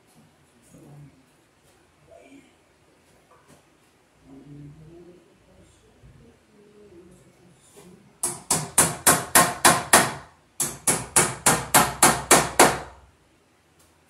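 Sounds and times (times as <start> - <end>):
hammer tapping staples into wood: 8.2 - 13.0.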